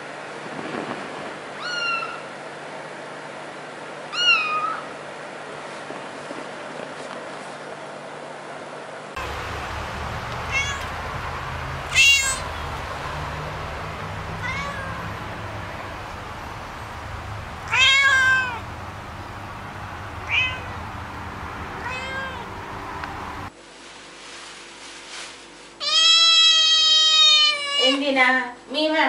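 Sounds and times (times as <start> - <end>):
cats meowing: 1.6 - 2.3, 4.1 - 4.9, 9.2 - 22.8, 25.8 - 28.0.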